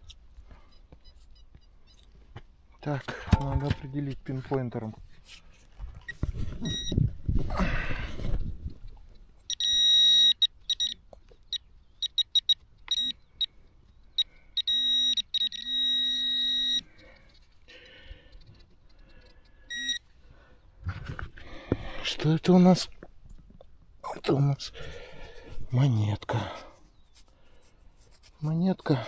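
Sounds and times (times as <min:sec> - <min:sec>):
metal detector beeping: 0:00.5 - 0:02.1, 0:06.0 - 0:07.1, 0:08.7 - 0:20.1.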